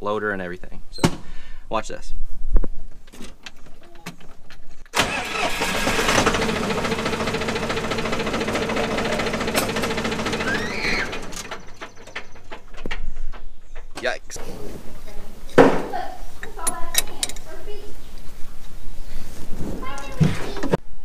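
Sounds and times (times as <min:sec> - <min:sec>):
tractor diesel engine running: 0:05.0 - 0:13.0.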